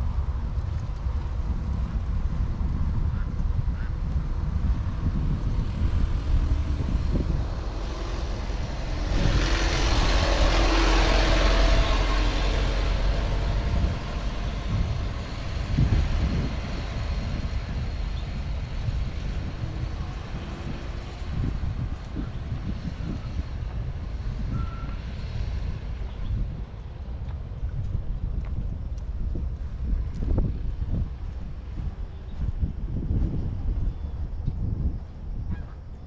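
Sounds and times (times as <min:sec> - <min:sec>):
steady low rumble: 0:00.0 - 0:36.0
motor vehicle passing close: 0:05.1 - 0:33.8.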